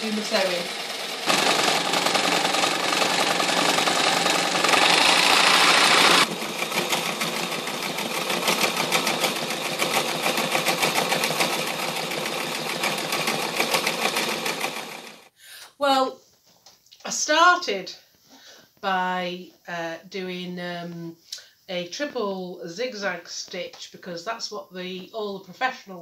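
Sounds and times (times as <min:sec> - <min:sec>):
sewing machine stitching fabric: 0:00.0 - 0:15.3
sewing machine winding bobbin: 0:00.0 - 0:15.3.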